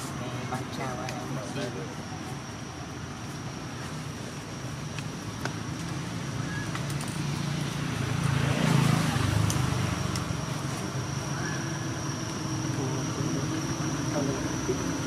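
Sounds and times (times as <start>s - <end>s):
vehicle passing: 5.6s - 15.0s.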